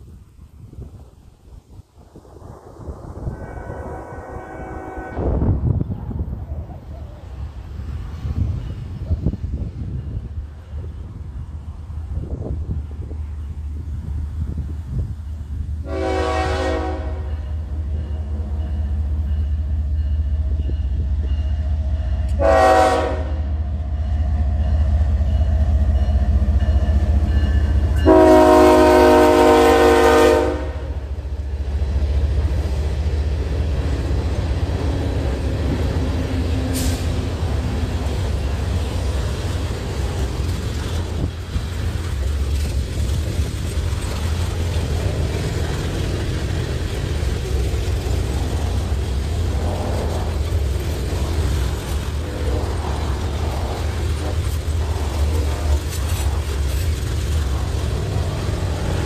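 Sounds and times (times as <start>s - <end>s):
freight train rumbling: 0.0s - 59.0s
train air horn blasts: 3.2s - 5.6s, 15.8s - 17.6s, 22.0s - 24.2s, 27.3s - 31.0s, 36.6s - 37.3s.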